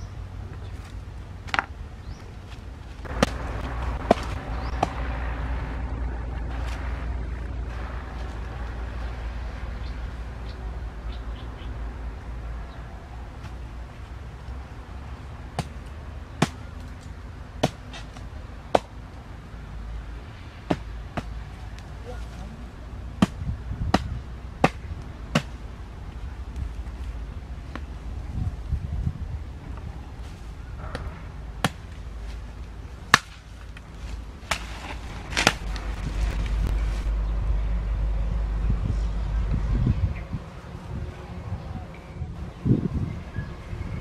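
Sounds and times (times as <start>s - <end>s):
hatchet chopping wood: 4.0s - 5.0s, 17.6s - 18.9s, 23.2s - 25.6s.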